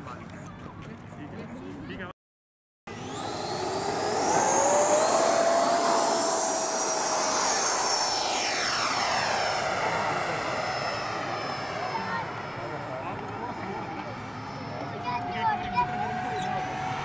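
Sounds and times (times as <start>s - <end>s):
rushing air: 2.9s - 13.1s
jet fan whine: 2.9s - 17.0s.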